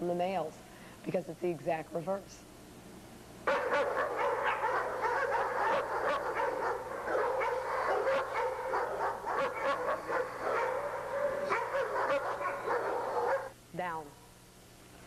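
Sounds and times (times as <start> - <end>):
dog snarling and barking: 3.5 - 13.5.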